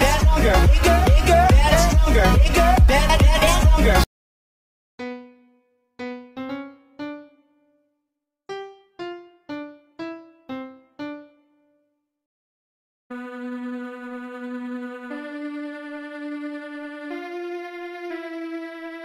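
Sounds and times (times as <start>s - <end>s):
electronic dance music: 0.0s - 4.1s, 13.1s - 19.0s.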